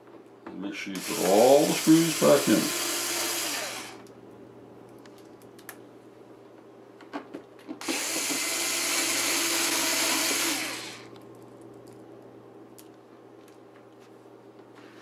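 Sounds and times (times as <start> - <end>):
cordless screwdriver whirring: 1.0 - 4.1, 7.8 - 11.1.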